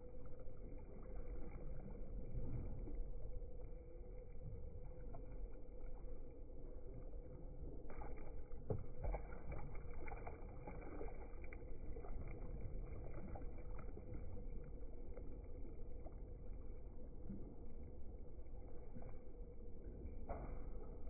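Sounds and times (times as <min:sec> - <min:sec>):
water lapping around kayak: 0:00.0 - 0:21.0
paddle splashes: 0:07.6 - 0:16.2.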